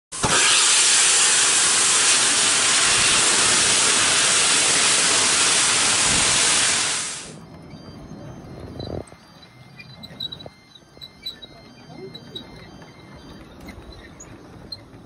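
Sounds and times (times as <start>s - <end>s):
steam locomotive hissing steam: 0.1s - 7.4s.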